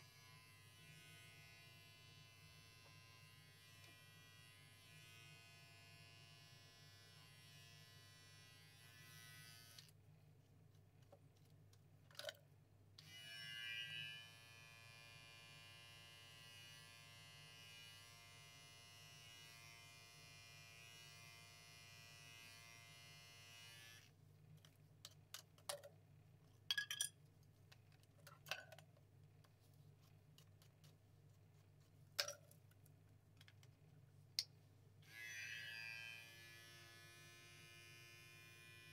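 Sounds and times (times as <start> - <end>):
electric clippers buzzing: 0.0 - 9.9, 13.0 - 24.1, 35.1 - 38.9.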